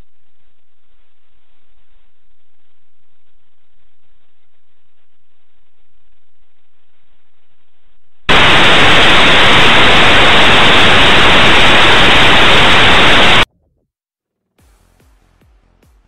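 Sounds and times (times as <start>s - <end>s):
faint hiss: 8.3s - 13.4s
loud static hiss: 8.3s - 13.5s.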